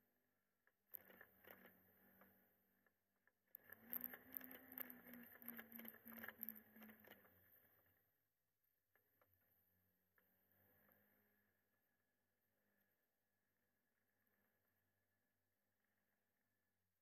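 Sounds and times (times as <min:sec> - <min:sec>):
muffled clicks and scrapes: 0:00.6 - 0:08.1.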